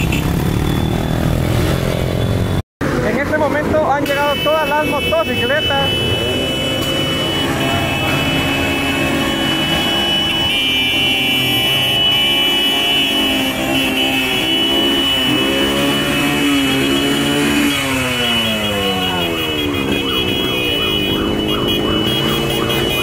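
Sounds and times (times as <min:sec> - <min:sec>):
motorcycle engines idling and revving: 0:00.0 - 0:23.0.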